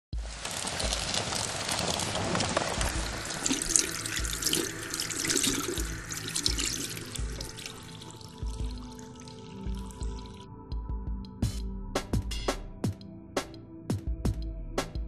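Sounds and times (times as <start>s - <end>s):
running splashing water: 0.1s - 10.4s
faint ambient music: 0.1s - 15.0s.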